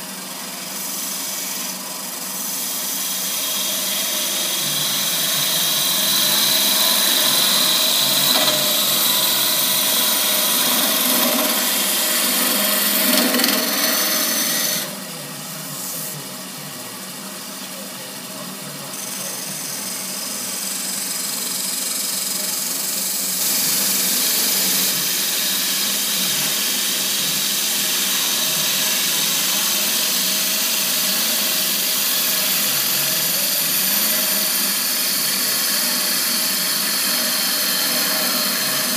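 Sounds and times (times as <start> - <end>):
lathe tool scraping wood: 0.7 - 15.0, 23.4 - 38.9.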